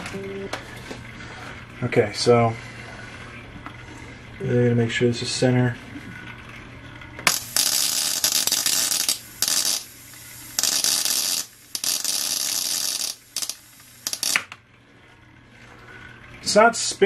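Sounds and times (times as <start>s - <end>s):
faint low hum: 0.0s - 7.2s
electric arc hissing and crackling: 7.2s - 14.6s.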